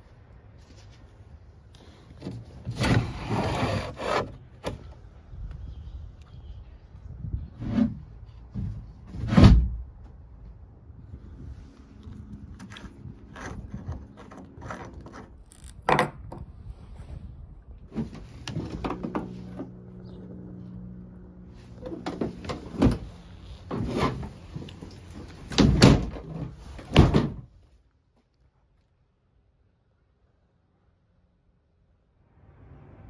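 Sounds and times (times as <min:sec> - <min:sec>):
low steady hum: 0:09.8 - 0:26.8.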